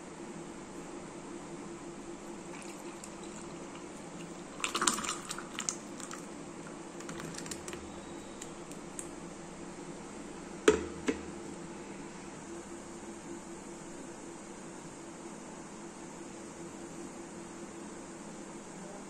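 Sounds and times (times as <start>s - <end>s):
liquid pouring into a glass: 2.4s - 8.9s.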